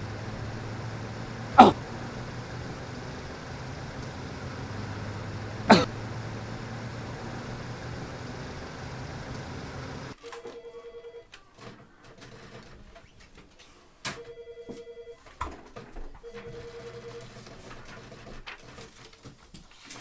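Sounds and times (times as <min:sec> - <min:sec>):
car engine idling: 0:00.0 - 0:10.2
man sobbing: 0:01.6 - 0:01.8, 0:05.7 - 0:05.9
electronic ringing tone: 0:10.2 - 0:11.3, 0:14.2 - 0:15.2, 0:16.2 - 0:17.2.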